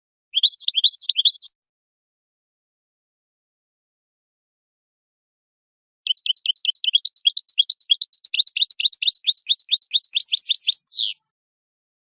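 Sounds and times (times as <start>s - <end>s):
finch twittering song: 0.3s - 1.5s, 6.1s - 11.2s.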